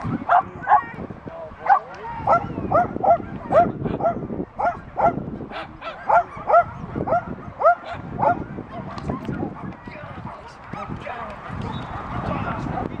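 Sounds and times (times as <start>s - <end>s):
dog barking in high-pitched yaps: 1.7s - 8.4s.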